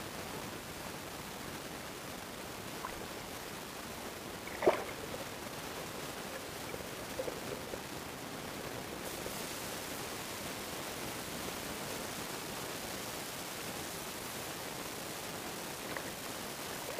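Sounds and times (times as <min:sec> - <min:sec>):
steady hiss: 0:00.0 - 0:16.9
water sloshing and splashing: 0:02.8 - 0:03.3, 0:04.4 - 0:05.3.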